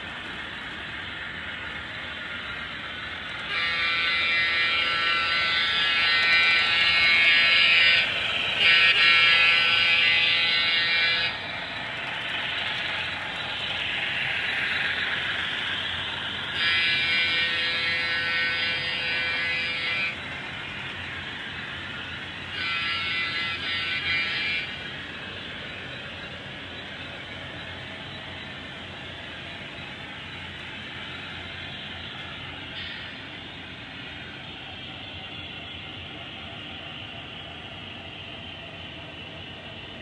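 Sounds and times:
model diesel engine sound: 0:00.0 - 0:40.0
locomotive horn blasts: 0:03.4 - 0:11.6, 0:16.5 - 0:25.5.

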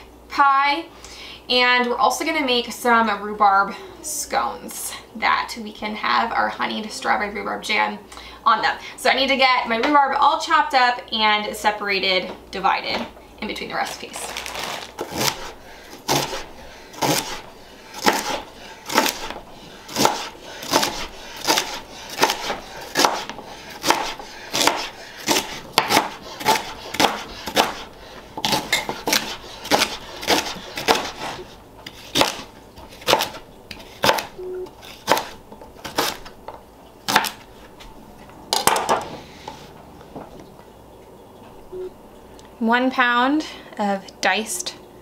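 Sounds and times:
knife chopping on cutting board: 0:15.0 - 0:36.3, 0:37.1 - 0:37.5.

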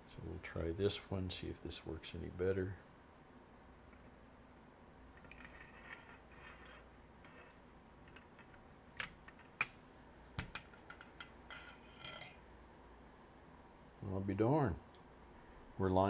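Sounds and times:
light metal scraping and clicks: 0:05.2 - 0:09.8, 0:10.4 - 0:12.5.

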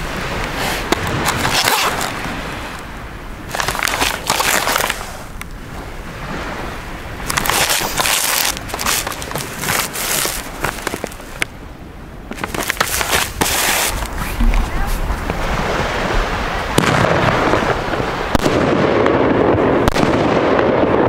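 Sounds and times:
cardboard box rustling and scraping: 0:07.4 - 0:11.3, 0:12.4 - 0:15.4.

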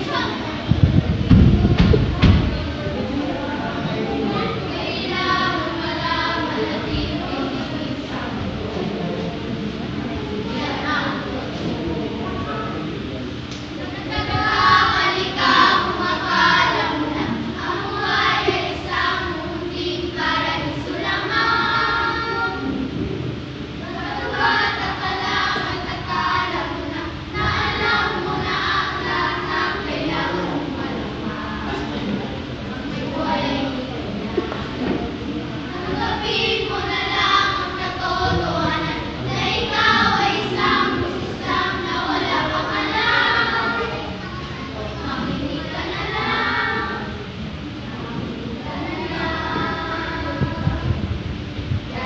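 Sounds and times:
children's voices in unison: 0:00.0 - 0:08.5, 0:13.5 - 0:23.0, 0:23.6 - 0:51.0.

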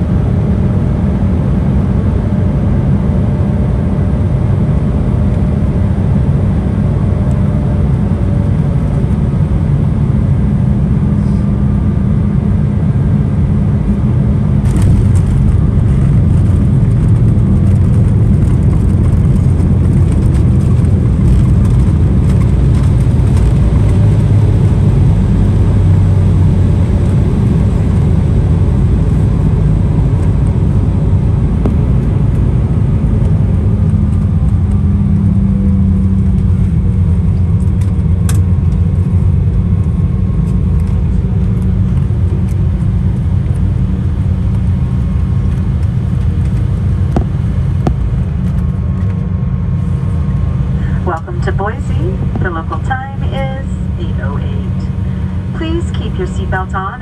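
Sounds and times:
jet engines rumbling: 0:00.0 - 0:57.0
landing gear rolling on runway: 0:14.6 - 0:49.2.

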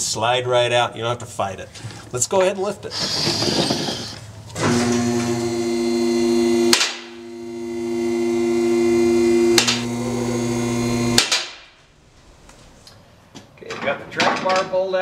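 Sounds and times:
hydraulic pump humming: 0:02.9 - 0:11.4
sharp clacks: 0:06.7 - 0:07.1.

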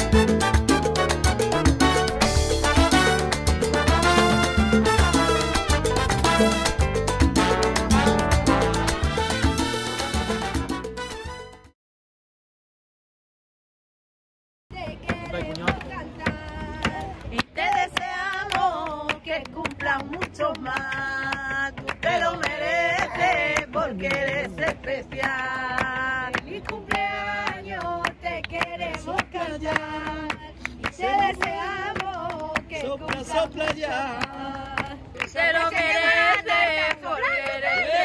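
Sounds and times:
people singing flamenco song: 0:00.0 - 0:08.7, 0:14.7 - 0:38.0
rhythmic handclaps: 0:00.0 - 0:11.1, 0:14.8 - 0:38.0.

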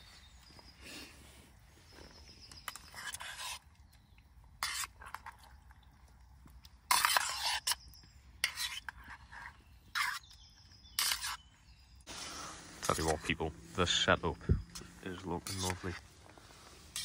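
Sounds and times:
metal spoon scraping a pot: 0:02.5 - 0:03.8, 0:04.6 - 0:05.6, 0:06.7 - 0:11.5, 0:12.6 - 0:13.4, 0:14.7 - 0:16.0, 0:16.7 - 0:17.0.

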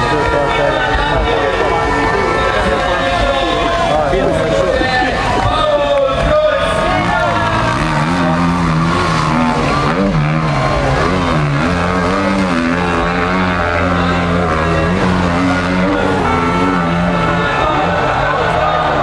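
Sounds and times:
motorcycle engine revving: 0:06.5 - 0:19.0.

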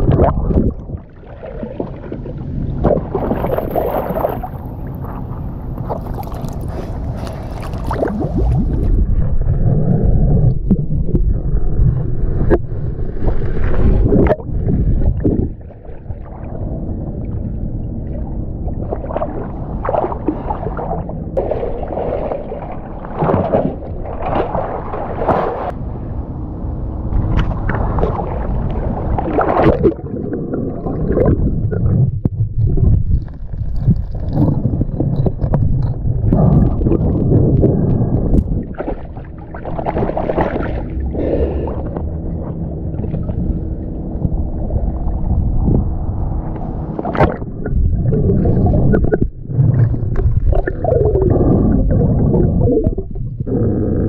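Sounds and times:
river water sloshing and gurgling: 0:00.0 - 0:09.9, 0:12.4 - 0:17.4, 0:18.0 - 0:25.8, 0:27.1 - 0:45.8.

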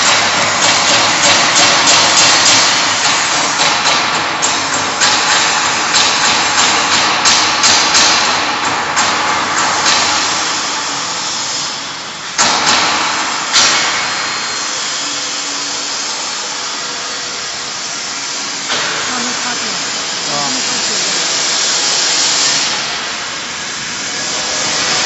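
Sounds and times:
machine knocking: 0:00.0 - 0:11.5, 0:12.4 - 0:14.4
sausage filling machine running: 0:00.0 - 0:25.0.

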